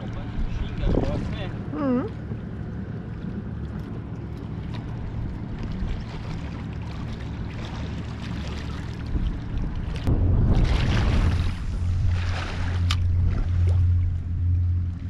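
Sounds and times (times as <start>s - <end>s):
low rumble: 0.0s - 15.0s
sea: 0.0s - 15.0s
wind: 0.0s - 15.0s.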